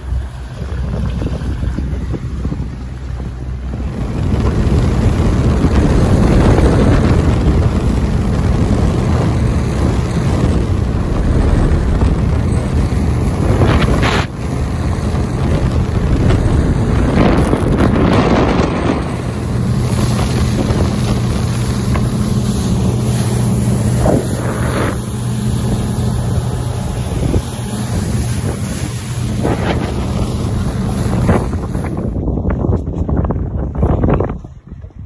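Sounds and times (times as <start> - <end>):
boat outboard engine running: 0.0 - 35.0
wind buffeting microphone: 0.0 - 35.0.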